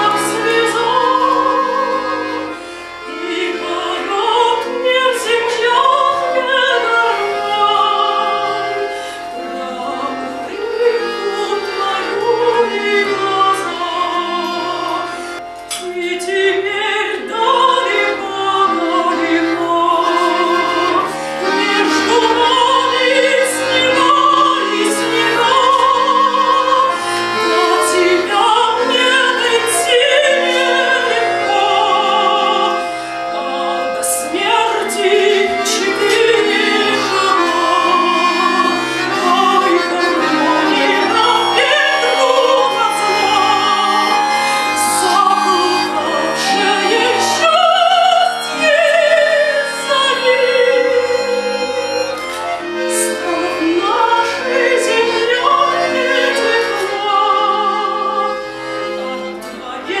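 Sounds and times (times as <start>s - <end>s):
woman singing operatically: 0.0s - 2.2s, 3.2s - 15.0s, 15.8s - 32.8s, 33.4s - 51.9s, 52.9s - 58.4s, 59.6s - 60.0s
accordion chords: 0.0s - 60.0s.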